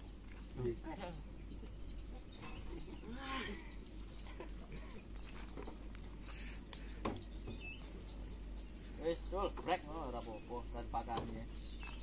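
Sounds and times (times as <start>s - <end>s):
small birds chirping: 0.0s - 12.0s
chickens clucking: 3.7s - 12.0s.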